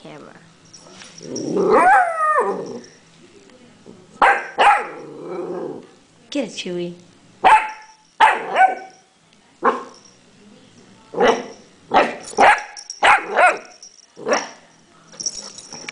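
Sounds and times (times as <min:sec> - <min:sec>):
puppy barking: 0:04.2 - 0:05.0, 0:07.4 - 0:09.0, 0:09.6 - 0:10.0, 0:11.2 - 0:14.6.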